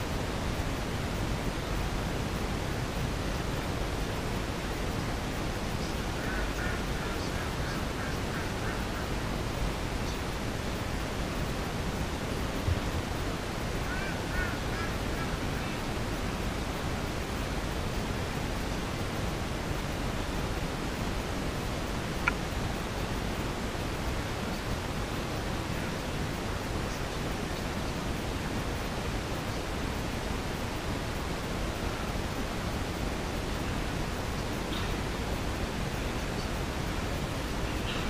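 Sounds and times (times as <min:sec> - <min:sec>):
recording noise hiss: 0:00.0 - 0:38.0
faint short chirping calls: 0:33.7 - 0:36.8.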